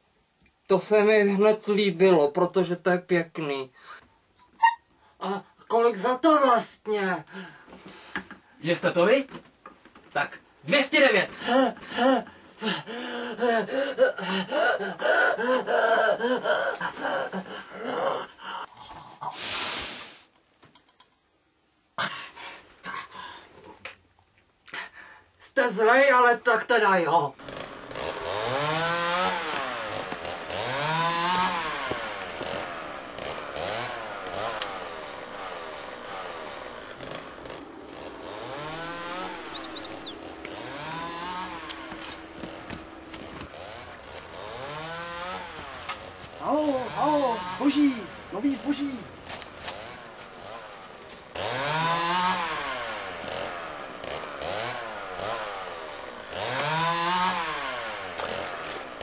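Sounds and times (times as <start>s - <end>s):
hedge trimmer motor whirring: 27.4s - 59.0s.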